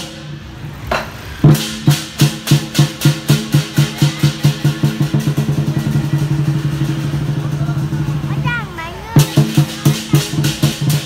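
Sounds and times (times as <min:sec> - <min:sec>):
cymbals crashing: 0:00.0 - 0:11.0
drum beating: 0:00.0 - 0:11.0.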